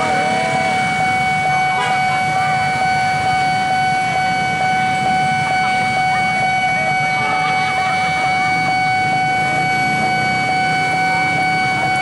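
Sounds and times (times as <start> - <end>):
motorcycle engines idling: 0.0 - 4.2
level crossing alarm tone: 0.0 - 12.0.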